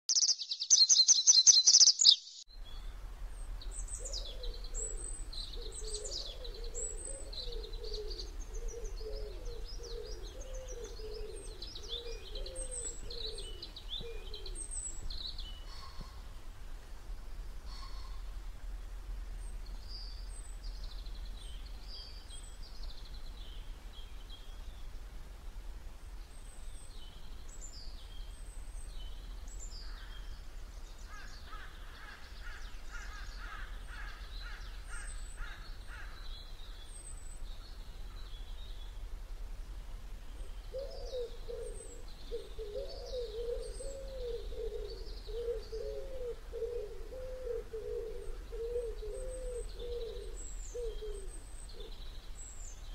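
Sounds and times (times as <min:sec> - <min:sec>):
high bird chirps: 0:00.1 - 0:02.5.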